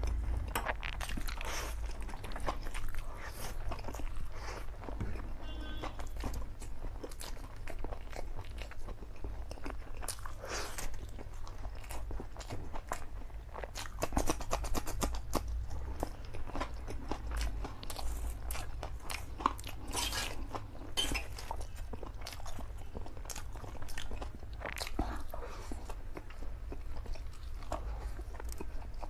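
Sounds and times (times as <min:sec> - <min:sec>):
wet chewing and slurping: 0:00.0 - 0:29.0.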